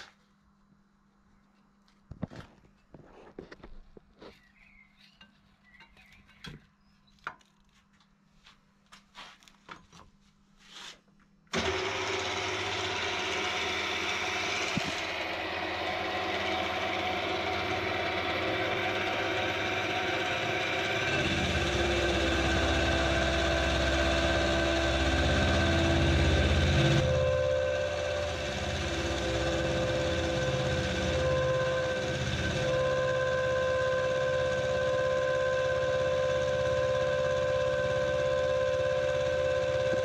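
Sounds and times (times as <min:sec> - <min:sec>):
end mill cutting steel: 0:11.5 - 0:40.0
milling machine motor whine: 0:11.5 - 0:40.0.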